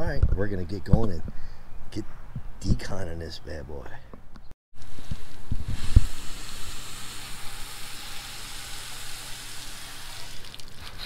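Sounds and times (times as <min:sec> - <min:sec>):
hose nozzle spraying water: 0:04.8 - 0:11.0.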